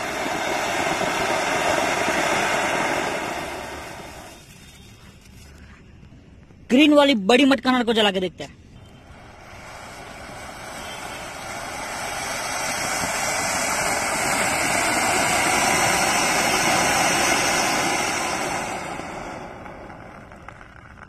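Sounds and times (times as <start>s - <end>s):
firework fountain hissing: 0.0s - 6.1s, 8.7s - 21.0s.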